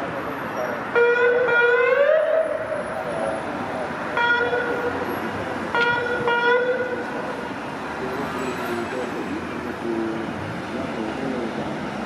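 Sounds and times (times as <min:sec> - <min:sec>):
city traffic: 0:00.0 - 0:12.0
police car horn blasts: 0:01.0 - 0:02.4, 0:04.2 - 0:04.9, 0:05.7 - 0:07.0.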